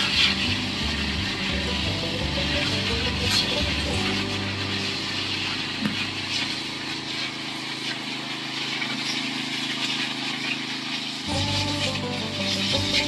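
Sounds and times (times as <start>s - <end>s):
hiss of spray: 0.0s - 13.0s
sprayer engine running: 0.0s - 13.0s.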